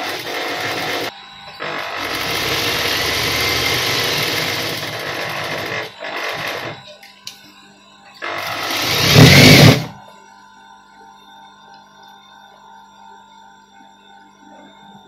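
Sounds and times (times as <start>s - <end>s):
sewing machine stitching: 0.0s - 6.8s, 8.2s - 10.0s.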